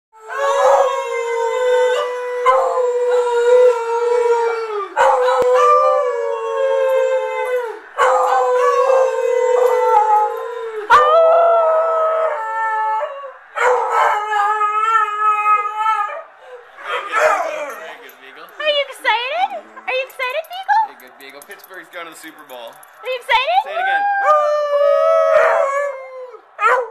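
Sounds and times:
dog howling: 0.2s - 21.1s, 23.4s - 26.9s.

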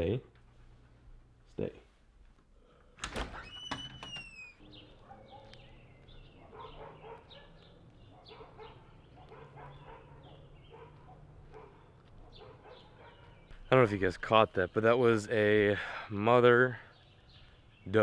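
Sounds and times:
birds chirping faintly: 0.0s - 18.0s
door latch click: 3.0s - 4.4s
door squeaking open: 3.0s - 4.7s
dog barking: 4.9s - 13.4s.

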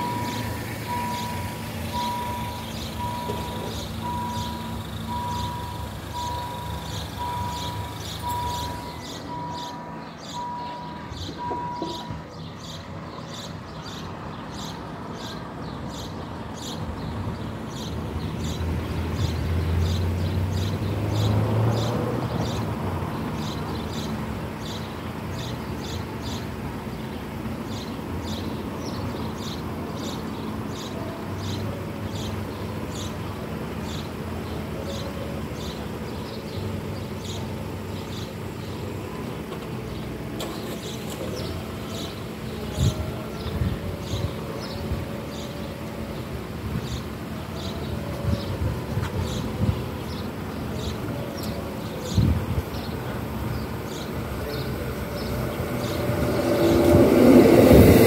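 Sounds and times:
vehicle engine rumble: 0.0s - 58.0s.

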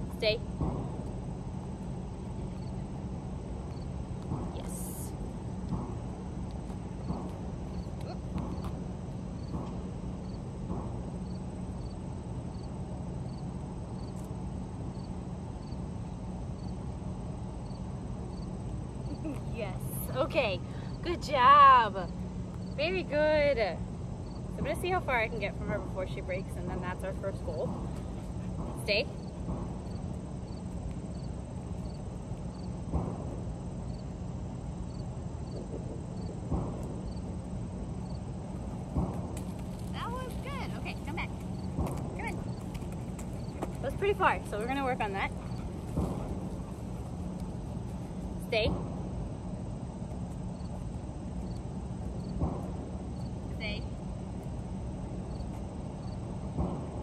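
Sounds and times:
insect chirping: 0.0s - 57.0s
steady low hum: 0.0s - 57.0s
steady low rumble: 0.0s - 57.0s
soft thumps: 38.8s - 48.9s.

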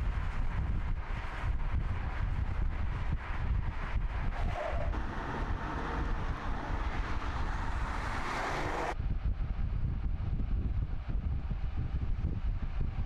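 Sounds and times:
wind rumble on microphone: 0.0s - 13.0s
car driving by: 4.4s - 9.0s.

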